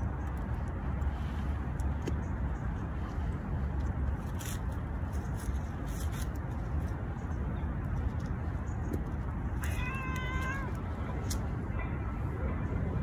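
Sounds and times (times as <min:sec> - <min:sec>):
cat yowling: 0:09.6 - 0:10.8.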